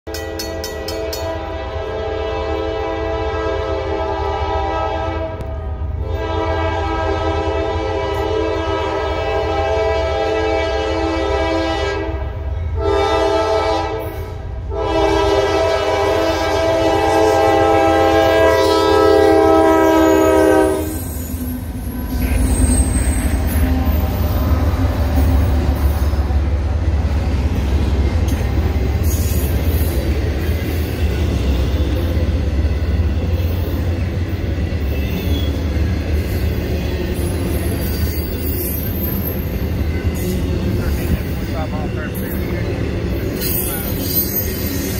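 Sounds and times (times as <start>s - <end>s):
train rumble and rail noise: 0.1s - 44.9s
locomotive air horn blasts: 0.8s - 21.4s.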